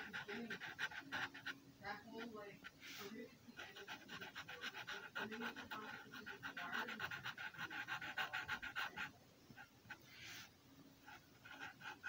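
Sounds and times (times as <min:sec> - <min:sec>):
marker scratching on paper: 0:00.0 - 0:12.0.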